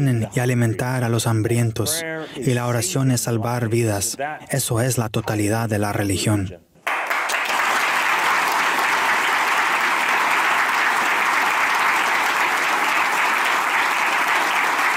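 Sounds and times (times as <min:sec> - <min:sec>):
audience applauding: 0:06.8 - 0:14.9.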